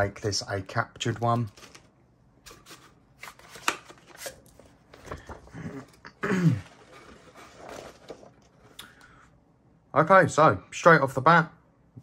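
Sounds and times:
paper rustling: 1.0 - 1.9, 2.5 - 8.8.

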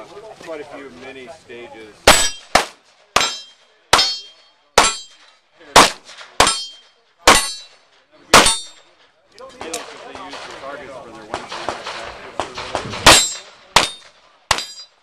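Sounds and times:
pistol shots: 2.0 - 8.8, 11.3 - 14.8.

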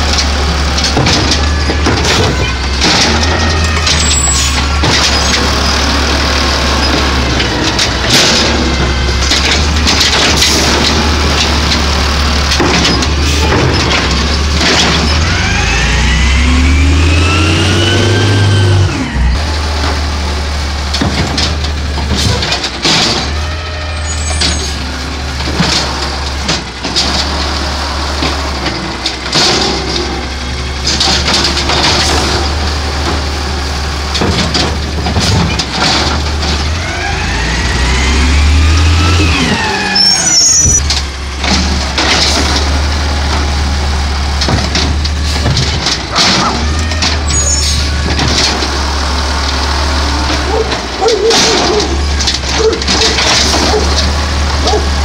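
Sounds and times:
brakes squealing: 0.0 - 55.0
garbage truck diesel engine: 0.0 - 55.0
metal clanks: 6.8 - 15.4, 20.9 - 33.4, 34.1 - 37.2, 38.5 - 43.6, 44.3 - 48.8, 49.4 - 55.0.

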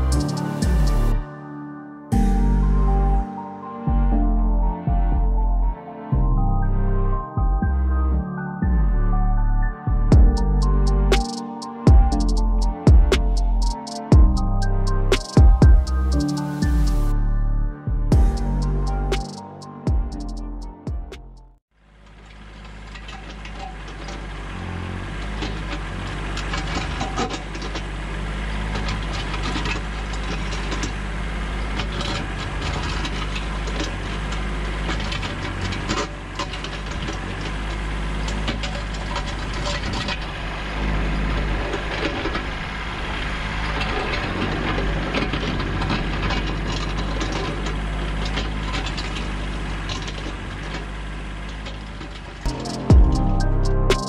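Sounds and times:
diesel tractor engine running: 0.0 - 1.4, 2.1 - 54.0
steel bucket scraping and digging: 22.5 - 53.5.

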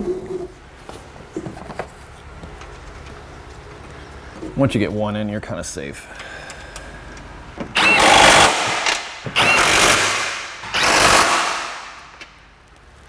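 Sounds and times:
power tool rattling: 7.7 - 11.9
power tool whine: 7.7 - 11.9.

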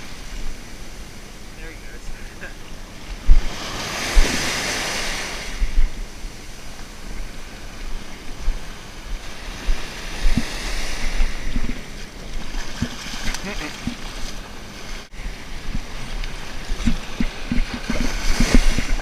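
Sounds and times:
ocean surf breaking: 0.0 - 19.0
wind buffeting microphone: 3.1 - 14.1, 15.0 - 19.0.

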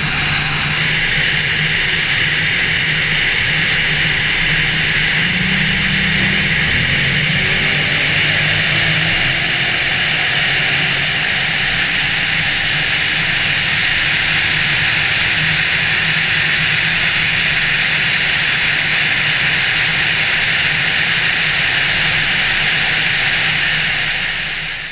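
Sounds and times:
low engine drone: 0.0 - 24.9
wind and road noise: 3.4 - 15.3.

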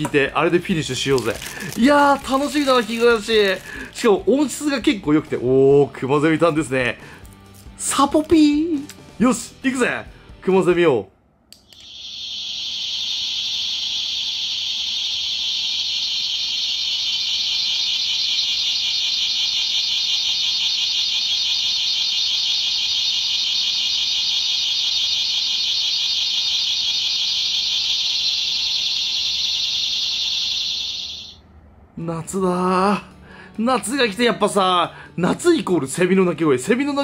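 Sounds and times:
cicada call from small speaker: 11.7 - 31.4.

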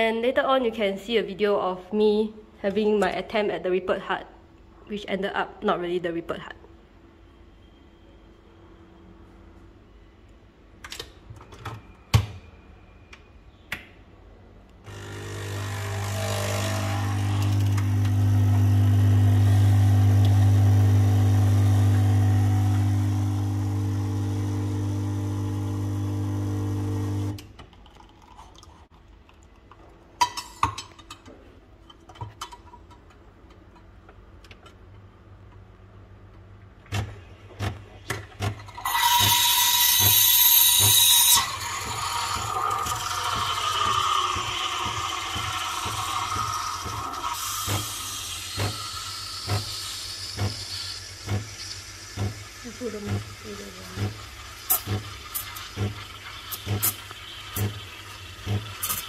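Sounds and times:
coffee machine pump humming: 14.9 - 28.7, 38.4 - 59.0.

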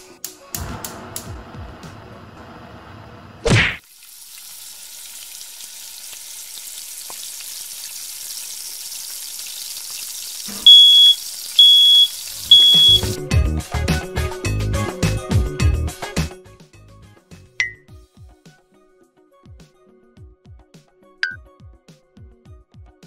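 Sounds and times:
music: 0.0 - 2.7, 12.4 - 23.0
food sizzling in a pan: 3.8 - 13.2
smoke alarm beeping: 10.6 - 13.2.

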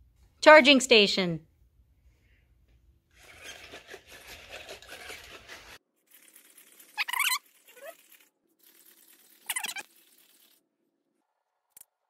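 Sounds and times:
robot dog high-pitched yips: 7.0 - 8.0, 9.5 - 9.8.

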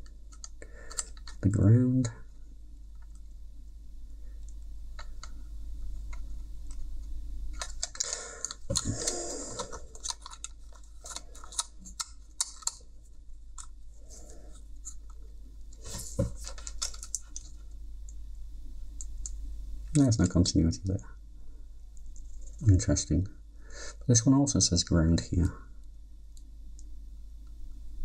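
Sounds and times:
plastic parts clicking: 0.3 - 1.4, 7.6 - 12.8, 16.3 - 17.5.

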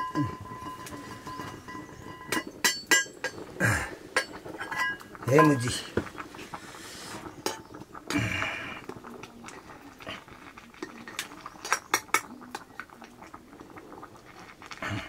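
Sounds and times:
ladle scraping a metal pot: 0.0 - 7.8.

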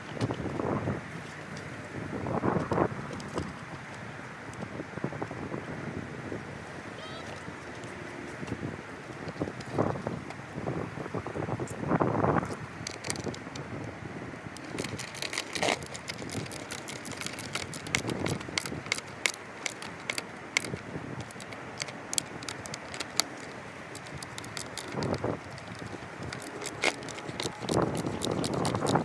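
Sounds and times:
small metal clicks and clinks: 14.6 - 29.0.

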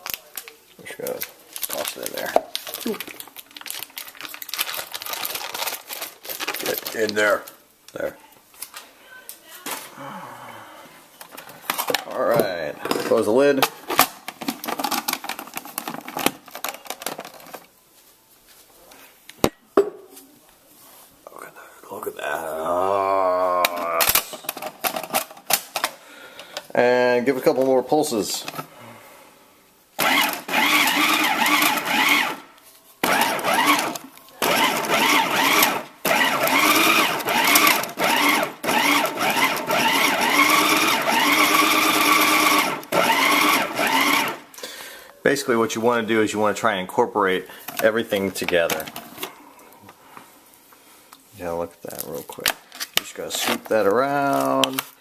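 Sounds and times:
food processor motor pulsing: 30.0 - 32.4, 33.0 - 44.4.

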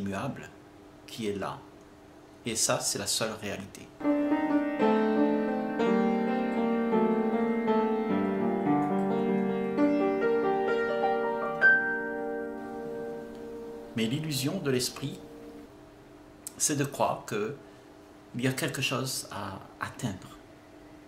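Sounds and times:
slow piano chords: 4.0 - 15.7.

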